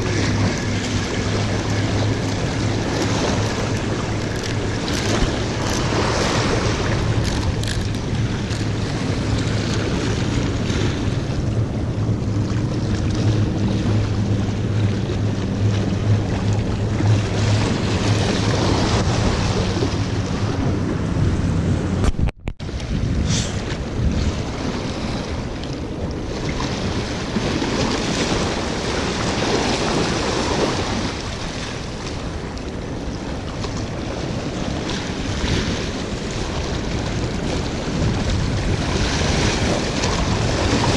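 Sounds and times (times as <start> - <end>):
waves washing against rocks: 0.0 - 11.7, 12.7 - 40.9
low hum: 0.0 - 26.2
wind buffeting microphone: 0.0 - 40.9.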